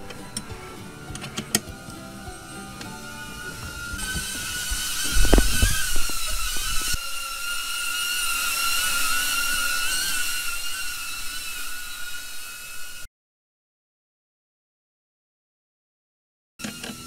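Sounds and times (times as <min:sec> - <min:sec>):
high mechanical whine: 0:00.0 - 0:13.1.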